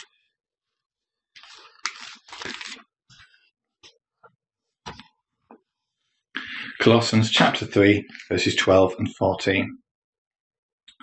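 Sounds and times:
paper pages rustling: 0:01.4 - 0:03.4.

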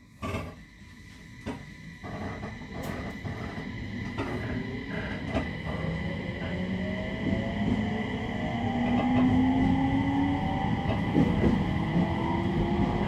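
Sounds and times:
electric train hum: 0:00.0 - 0:13.0
train drive whine rising: 0:00.0 - 0:13.0
train clunks: 0:01.4 - 0:06.6, 0:10.8 - 0:13.0.

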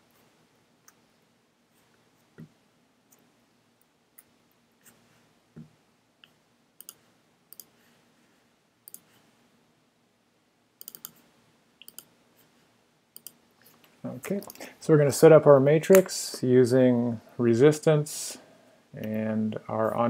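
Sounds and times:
computer mouse clicks: 0:06.2 - 0:07.7, 0:08.8 - 0:09.1, 0:10.8 - 0:11.2, 0:11.8 - 0:12.1, 0:13.2 - 0:13.4.

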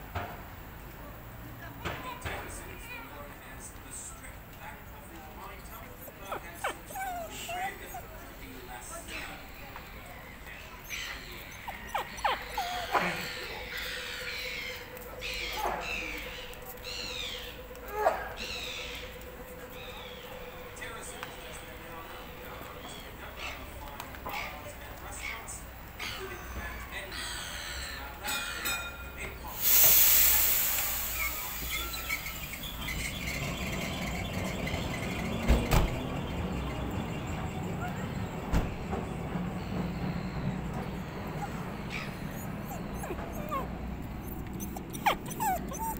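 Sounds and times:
tram rumbling: 0:00.0 - 0:45.9
dog whimpering: 0:05.5 - 0:20.8, 0:40.8 - 0:45.9
faint high squeaks: 0:10.7 - 0:20.9, 0:31.0 - 0:45.9
air hiss: 0:29.6 - 0:32.6.

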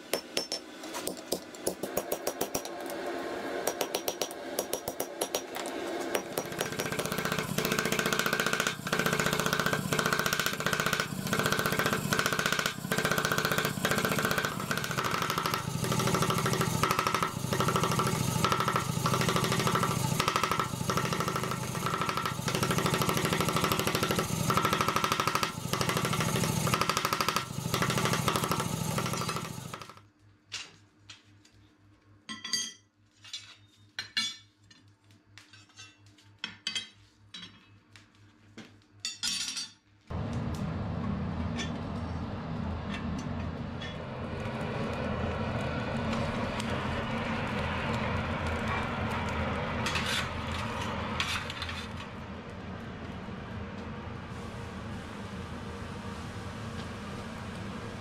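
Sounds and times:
iron bars clinking on anvil: 0:32.3 - 0:34.5, 0:39.0 - 0:39.8
forge air blower humming and whining: 0:40.1 - 0:58.0.

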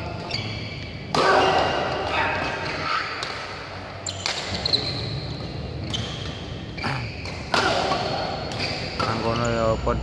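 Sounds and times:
shoes squeaking on court: 0:00.0 - 0:10.0
racket hitting shuttlecock: 0:01.0 - 0:05.0, 0:07.2 - 0:09.2.

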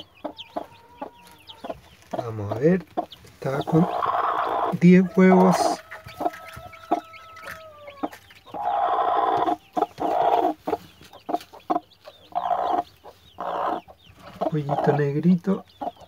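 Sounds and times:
chicks peeping faintly: 0:00.0 - 0:16.0
hen clucking: 0:00.0 - 0:16.0.

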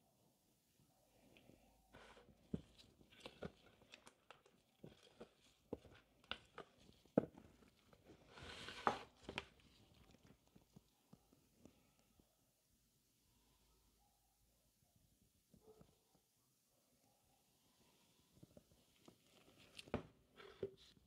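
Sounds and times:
spatula scraping thick batter: 0:02.0 - 0:10.4
rustling scrape: 0:07.6 - 0:10.0.

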